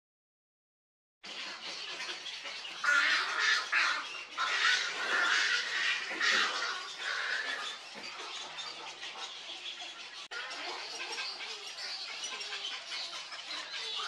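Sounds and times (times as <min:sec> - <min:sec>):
egret chicks squawking: 0:01.2 - 0:14.0.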